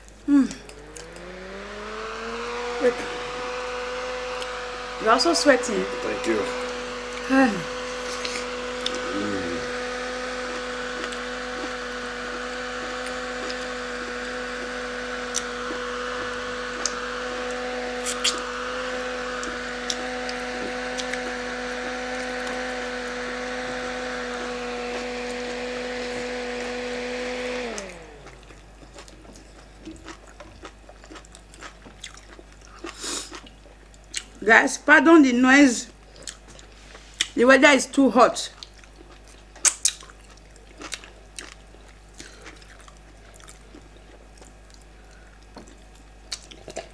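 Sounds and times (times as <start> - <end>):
handheld fan whirring: 0.0 - 29.3.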